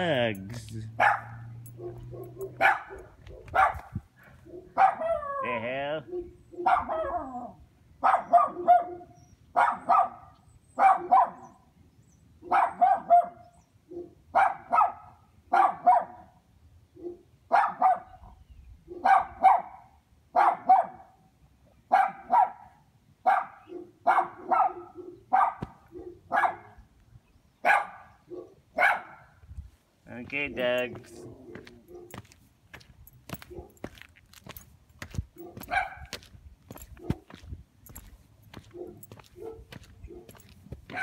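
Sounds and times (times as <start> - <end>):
dog barking: 1.0 - 11.6, 12.4 - 16.4, 17.0 - 18.2, 18.9 - 21.2, 21.9 - 26.8, 27.6 - 29.4, 31.0 - 32.3, 33.4 - 33.9, 35.3 - 36.2, 36.9 - 37.4, 38.5 - 41.0.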